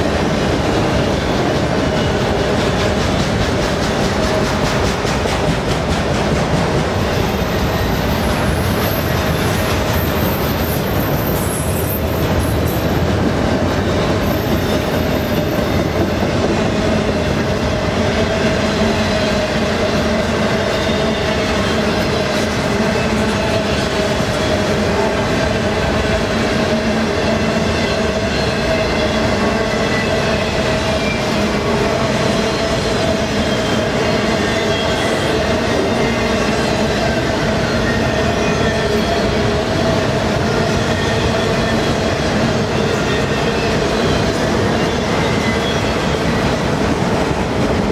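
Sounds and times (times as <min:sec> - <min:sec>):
train wheels rumbling on rails: 0:00.0 - 0:47.9
high wheel squeal: 0:07.1 - 0:13.1, 0:13.8 - 0:16.2, 0:26.8 - 0:46.5.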